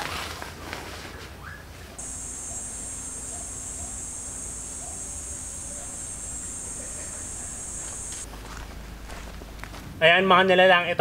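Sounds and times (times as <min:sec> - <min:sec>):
insects droning: 0:02.0 - 0:09.8.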